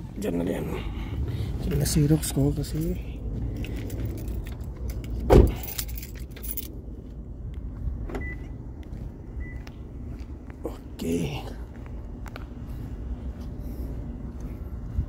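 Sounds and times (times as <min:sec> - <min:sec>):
keys jangling: 0:03.6 - 0:06.8
car door thump: 0:05.3 - 0:05.6.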